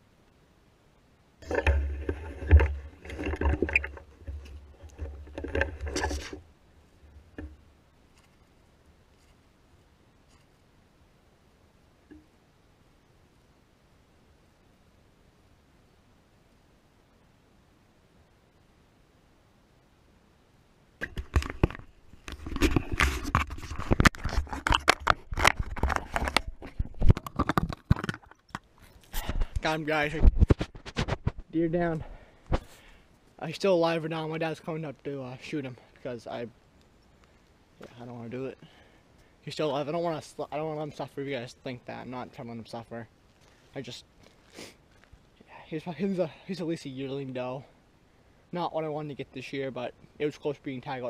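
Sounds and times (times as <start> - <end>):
rifle handling rumble and rustle: 1.4 - 10.7, 21.0 - 45.4.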